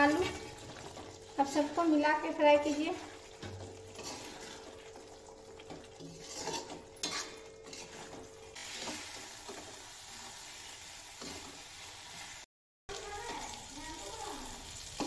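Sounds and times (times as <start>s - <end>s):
food frying sizzle: 0.0s - 15.0s
spatula scraping metal pan: 2.6s - 10.2s.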